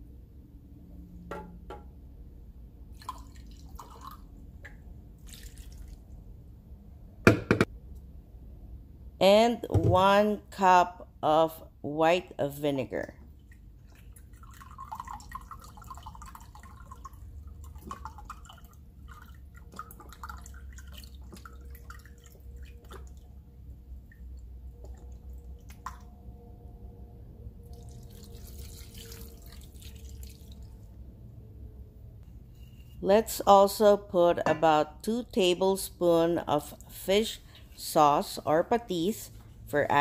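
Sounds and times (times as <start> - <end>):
liquid trickling into glass cup: 2.9 - 4.3, 5.2 - 6.0, 13.5 - 23.4, 27.7 - 30.8
liquid splashing into pot: 2.9 - 6.2, 13.4 - 26.1, 27.7 - 30.8.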